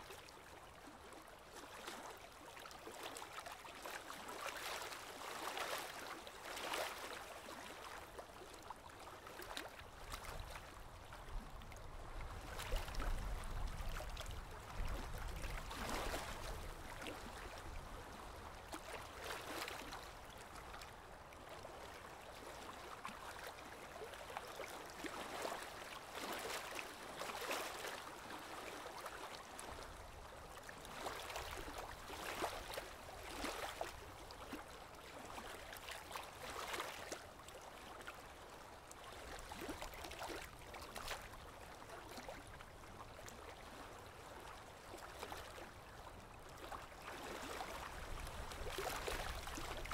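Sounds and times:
small splashes and plops: 11.6s - 20.9s, 21.5s - 29.9s, 30.6s - 38.0s, 42.1s - 49.9s.

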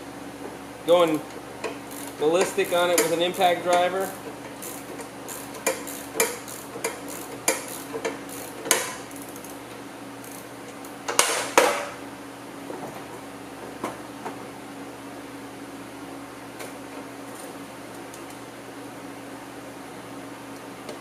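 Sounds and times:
ratchet clicks and clinks: 1.6s - 9.6s, 10.2s - 10.5s.

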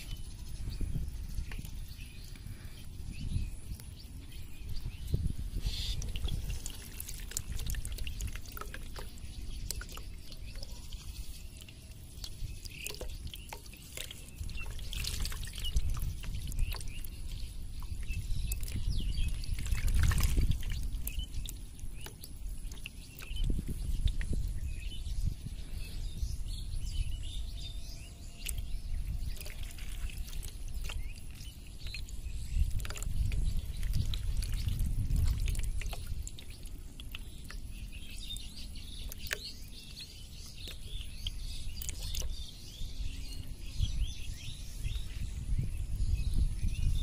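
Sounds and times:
small birds chirping: 0.0s - 47.0s
hand stirring water in basin: 5.6s - 24.6s, 28.4s - 42.4s.

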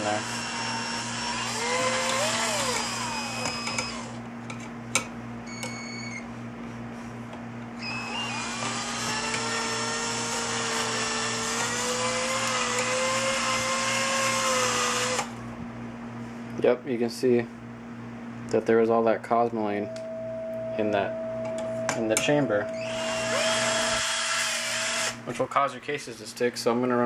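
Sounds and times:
electric drill motor whining: 0.0s - 4.2s, 7.8s - 15.4s, 22.3s - 25.2s.

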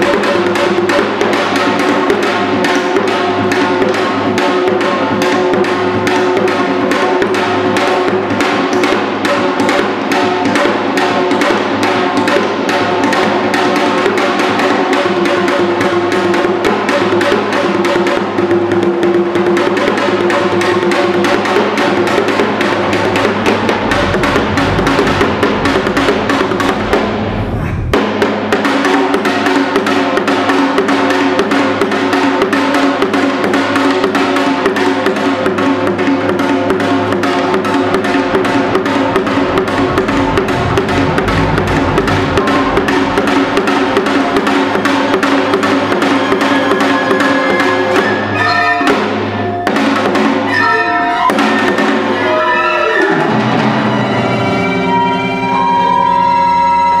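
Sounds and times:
hourglass drum strokes: 0.0s - 52.4s
string ensemble sustained notes: 22.6s - 28.1s, 37.8s - 45.9s
low rumble: 23.0s - 28.4s, 38.2s - 44.8s.

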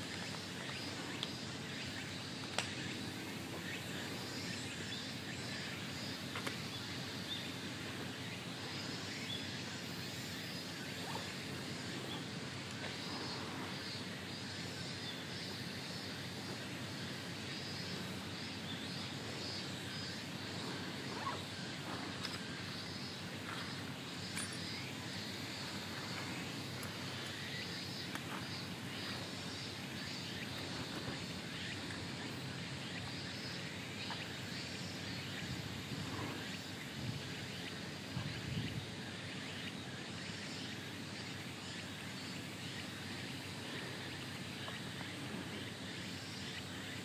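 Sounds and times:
outdoor background noise: 0.0s - 47.0s.

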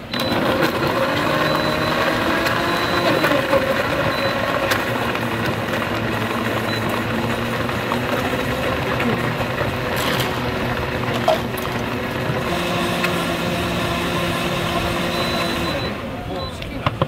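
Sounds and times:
blender crushing ice: 0.0s - 16.0s.

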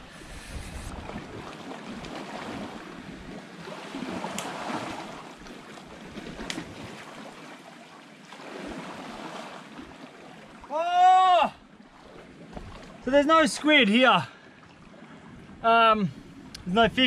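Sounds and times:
wind gusts on microphone: 0.0s - 3.4s
waves washing against rocks: 0.0s - 7.4s.

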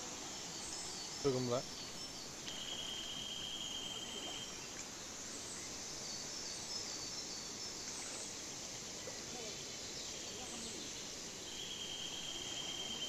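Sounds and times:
high insect buzz: 0.0s - 8.7s, 9.3s - 13.0s.

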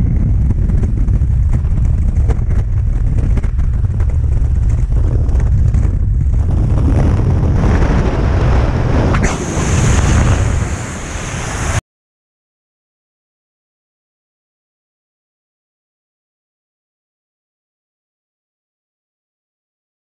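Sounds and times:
wind rushing over microphone: 0.0s - 11.8s.

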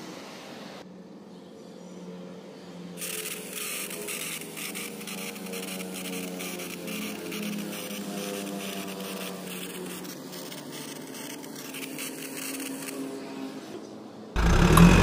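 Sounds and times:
small electric motor whirring: 3.0s - 13.4s, 14.4s - 15.0s.

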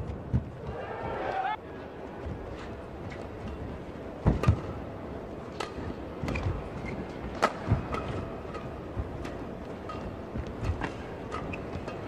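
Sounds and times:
rackets hitting shuttlecock: 4.2s - 4.7s, 5.5s - 6.5s, 7.3s - 12.0s.

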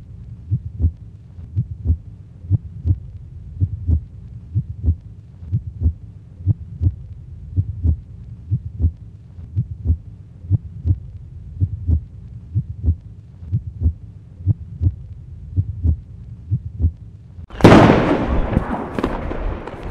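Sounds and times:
heartbeat double thump: 0.5s - 17.0s
loud explosion: 17.5s - 19.9s.

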